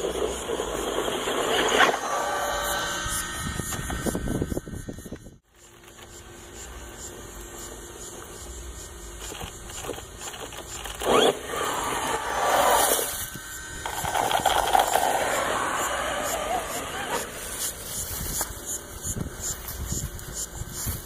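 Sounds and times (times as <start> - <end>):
electric motor whining: 0.0 - 7.5, 9.1 - 21.0
tyres scrabbling in loose dirt: 9.2 - 18.8.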